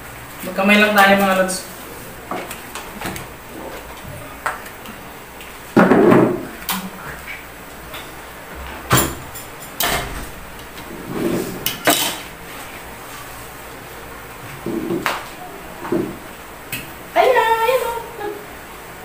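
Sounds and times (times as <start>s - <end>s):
plates clinking on a table: 11.7s - 12.3s.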